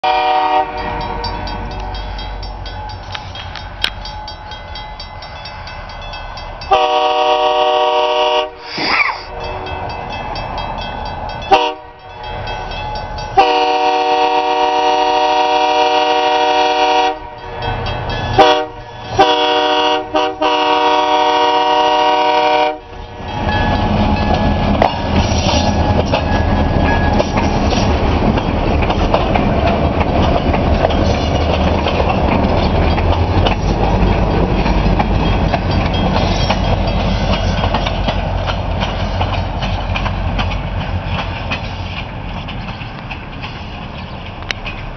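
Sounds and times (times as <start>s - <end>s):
locomotive air horn blasts: 0.0s - 1.0s, 6.7s - 8.7s, 11.5s - 12.0s, 13.4s - 17.4s, 18.4s - 22.9s
locomotive engine rumble: 0.0s - 44.9s
train wheel noise: 0.0s - 44.9s.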